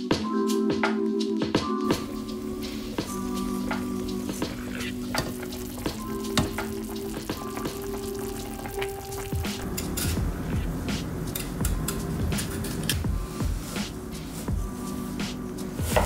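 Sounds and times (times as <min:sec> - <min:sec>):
liquid bubbling in a pot: 0:04.1 - 0:10.8.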